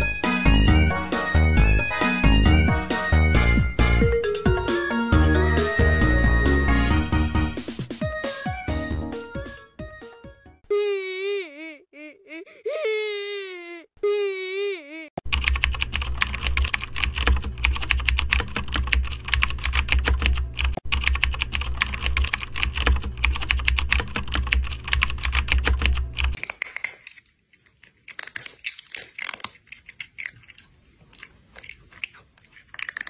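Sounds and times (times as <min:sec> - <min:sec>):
fast keyboard typing: 0:15.2 - 0:26.4.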